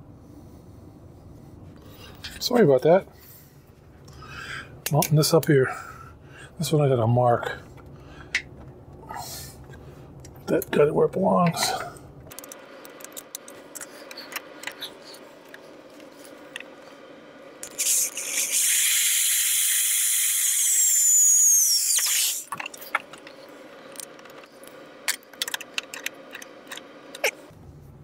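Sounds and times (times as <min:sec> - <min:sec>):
electric drill whining: 0:17.8 - 0:22.4.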